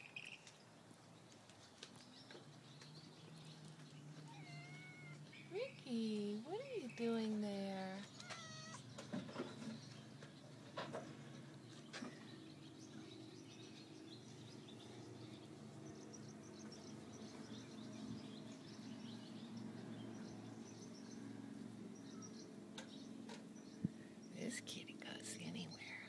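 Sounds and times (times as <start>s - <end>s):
faint bird chirps: 11.9s - 26.0s.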